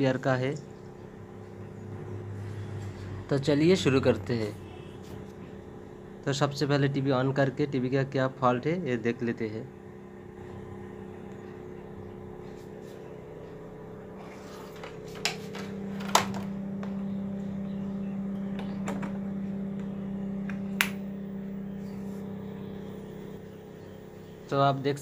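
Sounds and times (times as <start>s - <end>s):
low electrical hum: 0.0s - 25.0s
plug and switch clicks: 19.8s - 21.0s.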